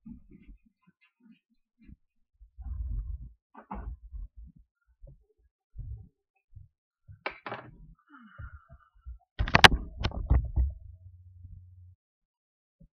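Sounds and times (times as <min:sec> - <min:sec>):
faint low hum: 0:08.4 - 0:12.0
microphone handling knocks: 0:09.4 - 0:10.9.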